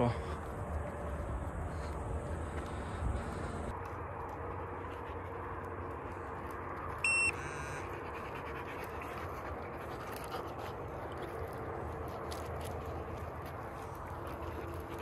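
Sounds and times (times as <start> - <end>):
outdoor noise: 0.0 - 15.0
steps and paws on stony ground: 0.0 - 15.0
loud electronic beep: 7.0 - 7.8.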